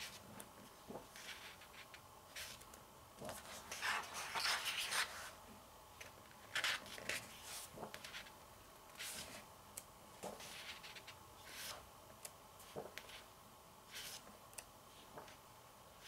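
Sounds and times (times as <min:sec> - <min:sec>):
book pages turning: 0:03.3 - 0:05.3.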